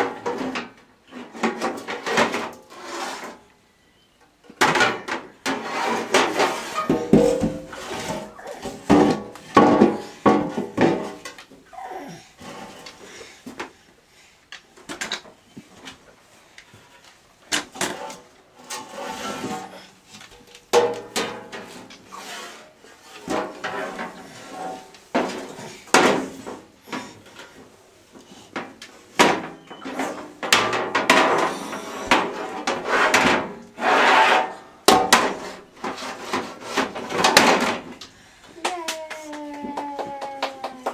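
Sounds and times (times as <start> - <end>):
metal pans knocking and clanking: 4.6 - 11.4, 20.5 - 22.1, 28.6 - 33.7, 34.3 - 37.9.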